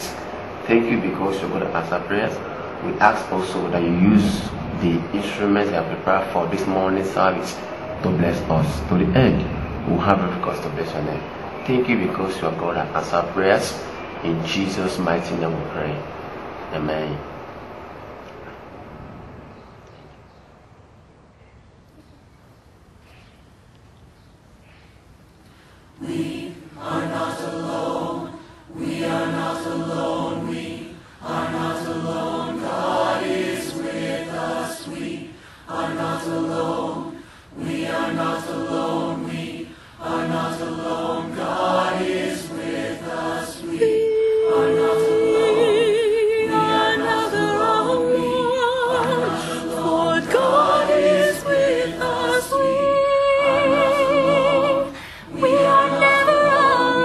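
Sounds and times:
choir singing: 0:00.0 - 0:16.2, 0:26.0 - 0:57.0
woman singing with vibrato: 0:26.0 - 0:57.0.

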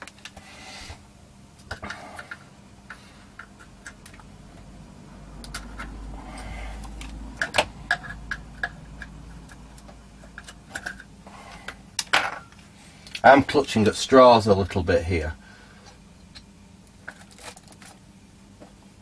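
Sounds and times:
low rumble of handling: 0:01.5 - 0:11.8.

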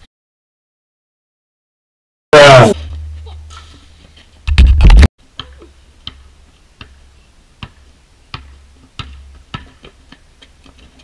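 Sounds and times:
basketball bouncing on asphalt: 0:04.5 - 0:07.0, 0:07.6 - 0:11.0.

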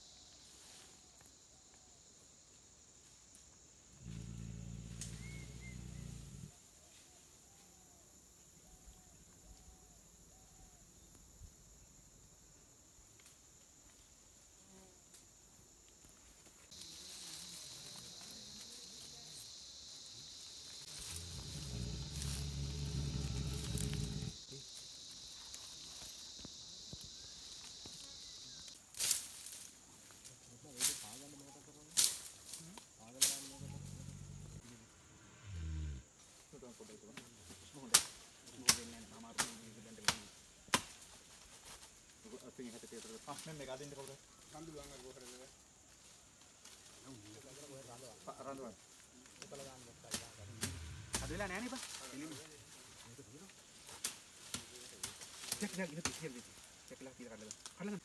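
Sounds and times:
rustle of leaves and branches: 0:00.0 - 0:08.0, 0:08.6 - 0:35.2, 0:36.2 - 0:58.0
insects droning: 0:00.0 - 0:58.0
elephant rumble: 0:04.0 - 0:06.6, 0:20.2 - 0:24.6, 0:33.5 - 0:36.1, 0:50.2 - 0:51.7
footsteps in undergrowth: 0:20.1 - 0:31.2, 0:40.9 - 0:56.9.

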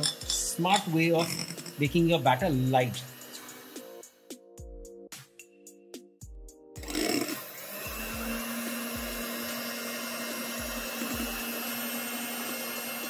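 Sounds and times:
electric hand mixer running: 0:00.0 - 0:04.0, 0:06.8 - 0:13.0.

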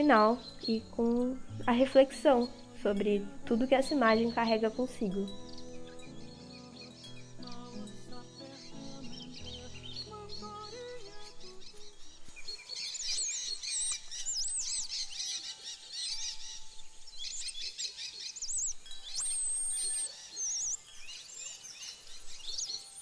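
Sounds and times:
birds chirping and trilling: 0:00.0 - 0:23.0
soft background music: 0:00.0 - 0:23.0
long high bird whistle: 0:18.5 - 0:20.8.

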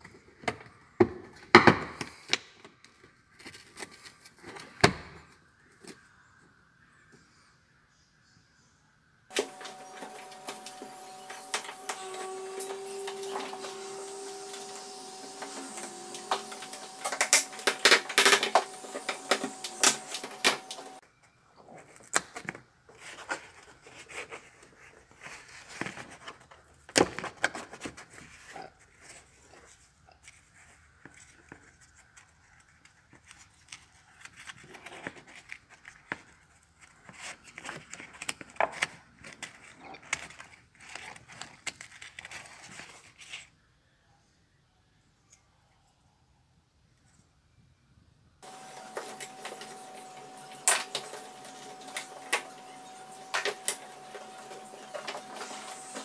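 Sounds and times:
steady hum: 0:09.3 - 0:21.0.

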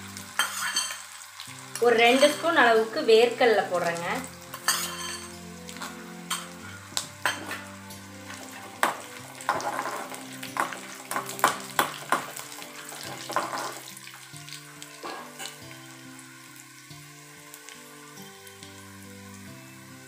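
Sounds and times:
food sizzling in hot oil: 0:00.0 - 0:20.0
metal spoon scraping a pan: 0:00.4 - 0:01.2, 0:01.8 - 0:02.6, 0:04.5 - 0:13.9, 0:15.0 - 0:15.6.

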